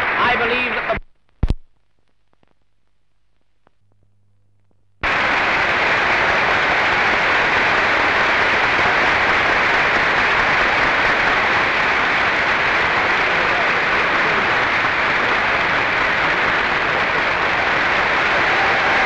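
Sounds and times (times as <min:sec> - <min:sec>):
audience applauding: 0:00.0 - 0:01.0, 0:05.0 - 0:19.0.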